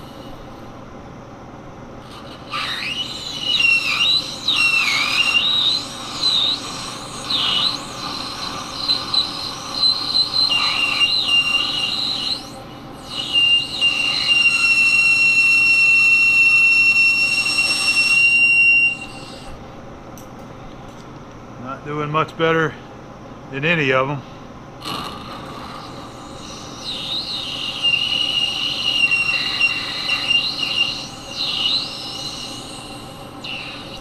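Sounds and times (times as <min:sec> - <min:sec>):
lathe cutting metal squealing: 0:02.0 - 0:19.6, 0:24.9 - 0:34.0.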